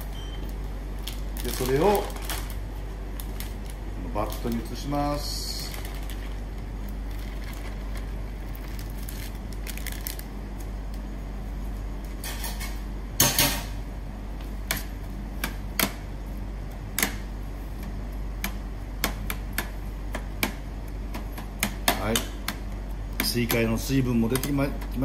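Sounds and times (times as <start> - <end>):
steady low hum: 0.0 - 25.0
plastic bag rustling: 1.0 - 10.8.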